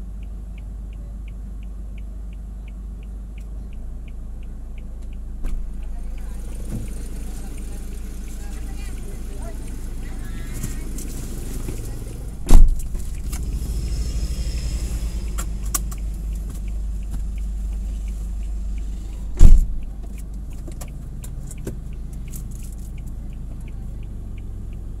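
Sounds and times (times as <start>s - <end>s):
engine idling: 0.0s - 25.0s
light regular ticking: 0.0s - 25.0s
loud thumps: 12.3s - 14.0s, 19.2s - 19.9s.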